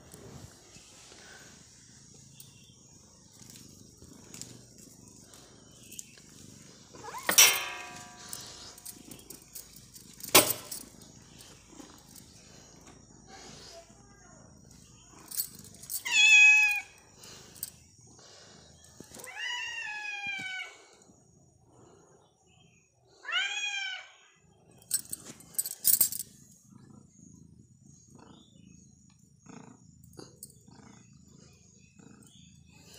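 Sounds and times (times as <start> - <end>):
cat purring: 0.0 - 19.3, 24.5 - 32.9
cat meowing: 16.0 - 17.0.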